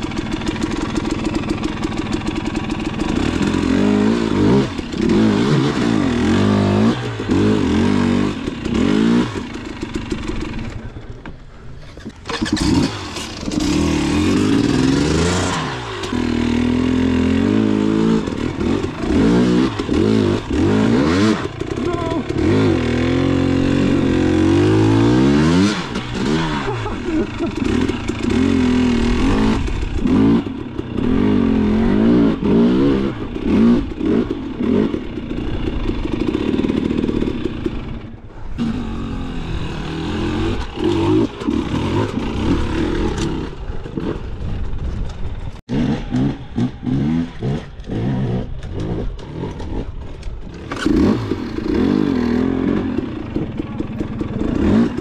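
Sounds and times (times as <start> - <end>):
rattle and clatter: 0.0 - 3.7, 40.4 - 46.8, 47.5 - 55.0
dirt bike engine revving: 0.0 - 11.1, 11.8 - 55.0.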